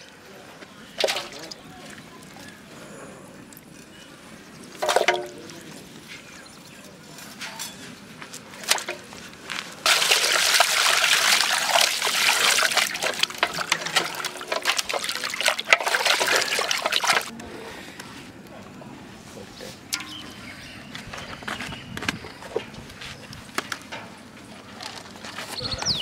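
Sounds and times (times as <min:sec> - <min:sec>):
hands sloshing in water: 0:09.9 - 0:17.3
water pouring into pot: 0:09.9 - 0:17.3.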